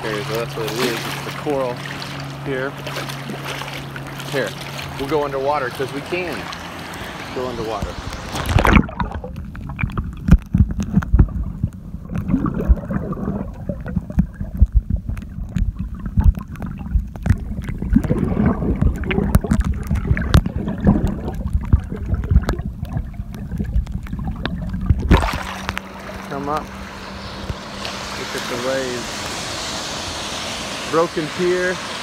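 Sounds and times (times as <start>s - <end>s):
sharp underwater clicks and crackles: 0.0s - 28.0s
muffled underwater surf rumble: 0.0s - 31.9s.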